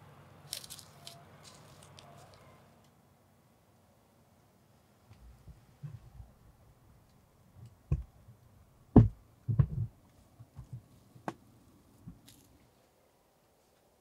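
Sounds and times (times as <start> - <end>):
dull knocks and thumps: 7.9 - 8.2, 8.9 - 11.4.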